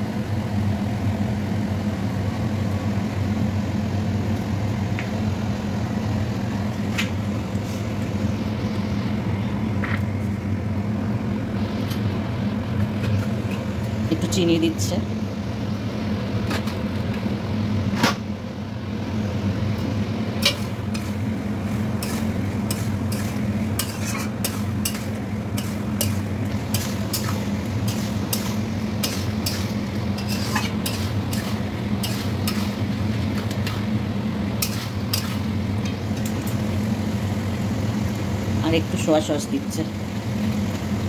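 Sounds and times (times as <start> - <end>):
light sizzle: 0.0 - 41.0
steady low hum: 0.0 - 41.0
metal spatula scraping a pan: 20.4 - 21.2, 22.0 - 32.8, 34.6 - 35.5.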